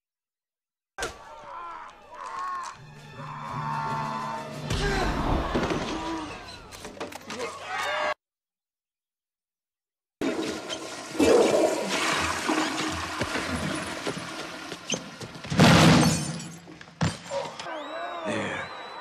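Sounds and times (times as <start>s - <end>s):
rushing water: 10.2s - 15.4s.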